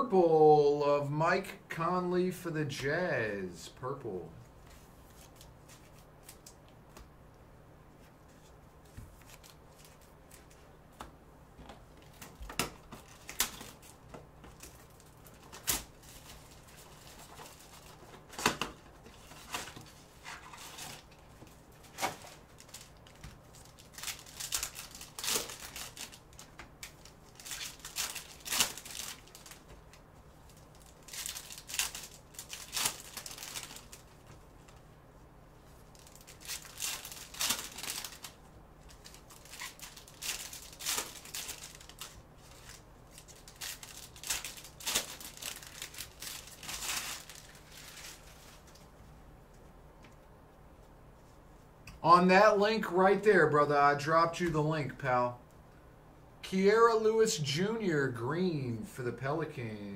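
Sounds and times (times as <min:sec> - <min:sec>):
plastic wrap tearing and crumpling: 0:12.1 - 0:21.2, 0:21.8 - 0:34.8, 0:35.8 - 0:48.8.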